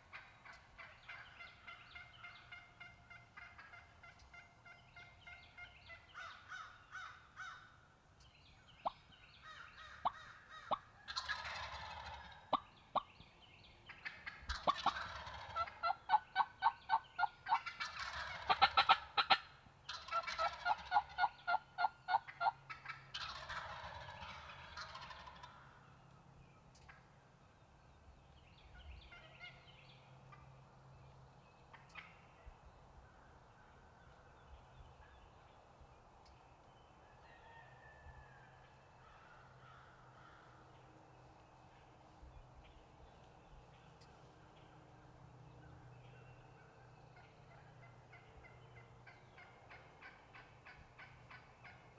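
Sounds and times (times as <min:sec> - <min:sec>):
turkey yelping notes: 0:00.1 - 0:07.6, 0:09.6 - 0:13.1, 0:14.0 - 0:25.6
turkeys gobbling: 0:00.1 - 0:07.6, 0:09.7 - 0:13.2, 0:13.9 - 0:25.8, 0:28.8 - 0:30.5, 0:31.7 - 0:32.3, 0:46.6 - 0:51.9.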